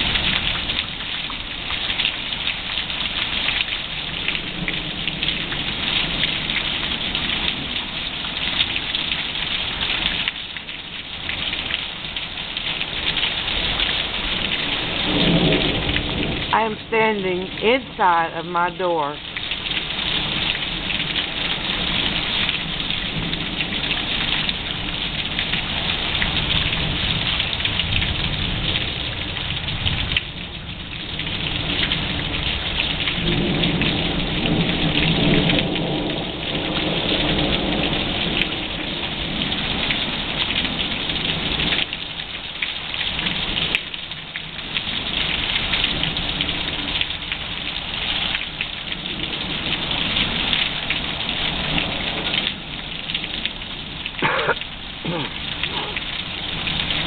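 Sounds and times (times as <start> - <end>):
heavy rain pouring: 0.0 - 57.0
thunder rumbling: 14.2 - 17.6.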